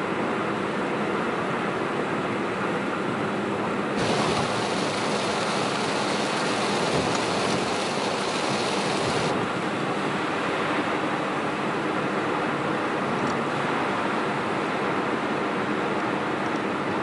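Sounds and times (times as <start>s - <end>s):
road and tyre noise inside car: 0.0s - 17.0s
heavy rain and tyre spray hiss: 4.0s - 17.0s.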